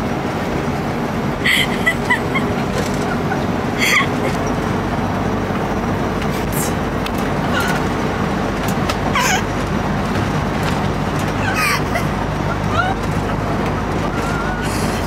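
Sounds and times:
bus engine drone: 0:00.0 - 0:15.0.

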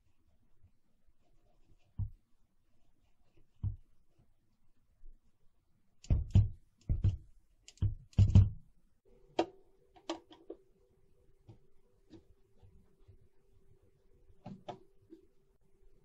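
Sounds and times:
faint steady hum: 0:00.0 - 0:16.0
hard knocks and clicks: 0:06.0 - 0:08.6.

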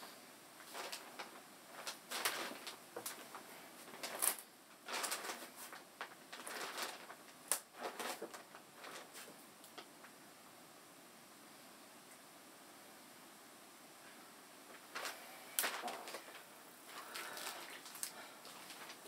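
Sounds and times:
paper rustling and shuffling: 0:00.6 - 0:09.9, 0:14.7 - 0:19.0.

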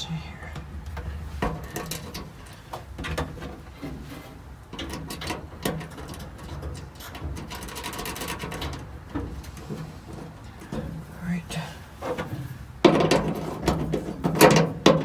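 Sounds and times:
handling clicks and rustles: 0:00.5 - 0:15.0.

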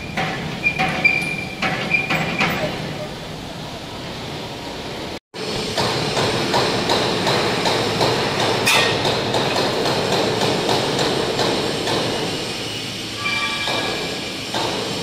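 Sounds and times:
sharp metallic clack: 0:05.8 - 0:12.1, 0:13.2 - 0:14.9
laser cutting machine hissing: 0:09.9 - 0:15.0.

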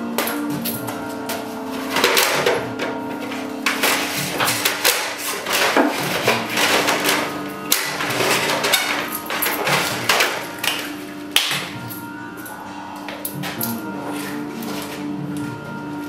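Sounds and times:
hammer smashing wood: 0:03.7 - 0:10.8.

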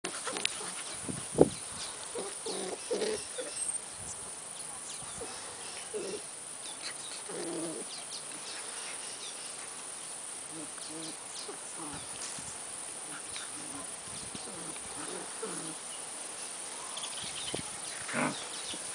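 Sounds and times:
dogs growling and grunting: 0:00.1 - 0:01.0, 0:02.1 - 0:03.6, 0:05.2 - 0:07.9, 0:10.5 - 0:12.2, 0:13.0 - 0:15.9, 0:17.9 - 0:18.7.

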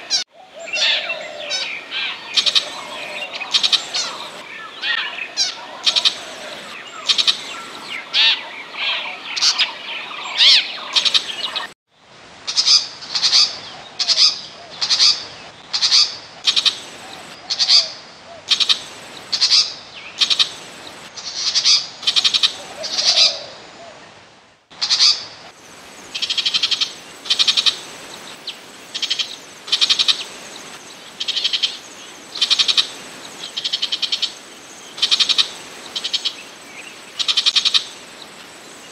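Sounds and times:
bird chattering calls: 0:00.0 - 0:11.7, 0:15.8 - 0:17.9, 0:18.5 - 0:23.5, 0:26.2 - 0:27.9, 0:28.9 - 0:30.4, 0:31.2 - 0:34.4, 0:35.0 - 0:36.4, 0:37.2 - 0:38.0
bird harsh call notes: 0:00.0 - 0:11.7.

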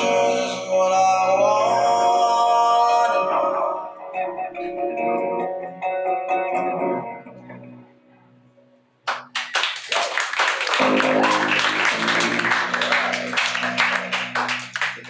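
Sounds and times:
audience applause: 0:09.1 - 0:15.0.

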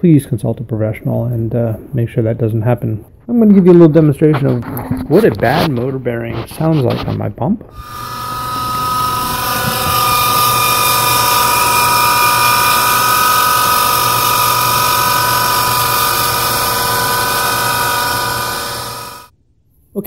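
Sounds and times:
pump motor high-pitched whine: 0:07.8 - 0:19.3.

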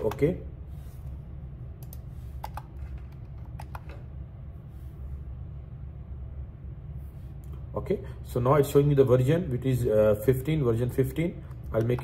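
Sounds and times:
steady low hum: 0:00.0 - 0:12.0
computer keyboard keys clicking: 0:01.8 - 0:04.0.

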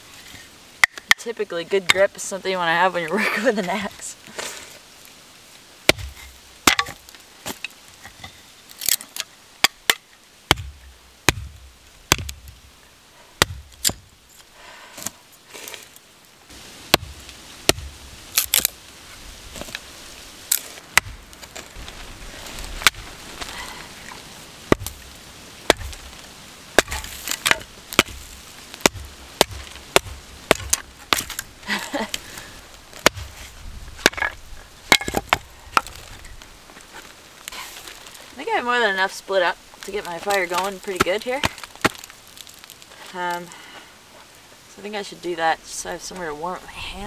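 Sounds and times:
axe splitting firewood: 0:00.8 - 0:01.3, 0:05.9 - 0:12.7, 0:13.4 - 0:16.0, 0:16.9 - 0:18.8, 0:20.5 - 0:36.1, 0:39.8 - 0:42.8.

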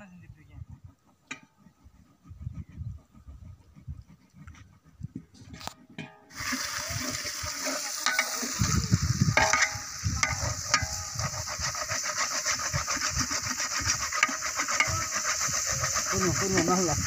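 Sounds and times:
metal spatula scraping pot: 0:05.5 - 0:17.0
food sizzling in a pot: 0:06.3 - 0:17.0.

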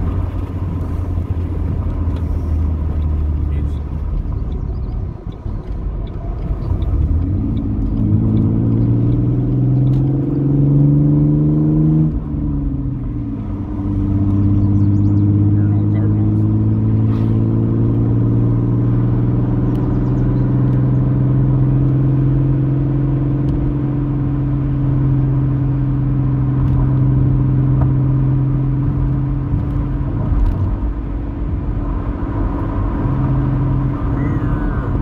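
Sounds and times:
car engine hum: 0:00.0 - 0:35.0
road noise: 0:00.0 - 0:35.0.

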